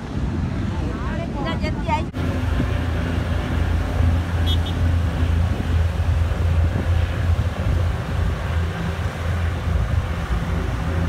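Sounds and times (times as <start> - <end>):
wind buffeting microphone: 0.0 - 11.0
low engine drone: 2.0 - 11.0.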